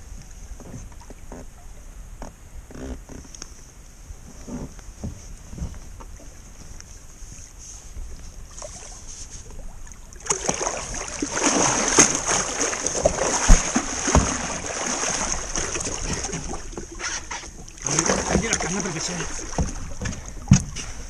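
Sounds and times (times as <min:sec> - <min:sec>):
heavy thumps against boat: 0:04.4 - 0:06.2, 0:12.9 - 0:16.6, 0:17.3 - 0:21.0
fish thrashing and splashing water: 0:08.5 - 0:21.0.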